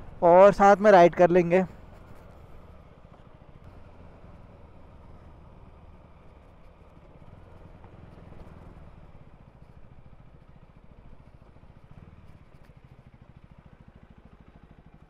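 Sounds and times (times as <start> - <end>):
motorcycle engine idling: 0.0 - 15.0.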